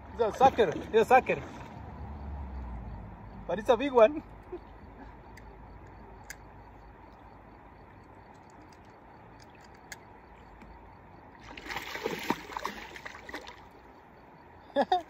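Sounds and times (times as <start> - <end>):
river ambience: 0.0 - 15.0
fish thrashing and splashing: 11.4 - 13.9.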